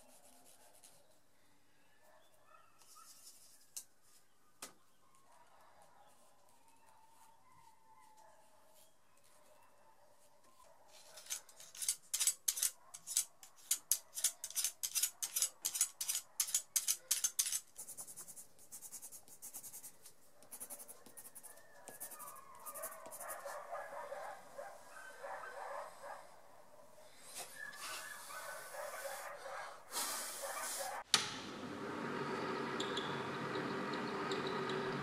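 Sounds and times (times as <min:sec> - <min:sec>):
pencil scratching on paper: 0:00.0 - 0:01.2, 0:12.5 - 0:24.0.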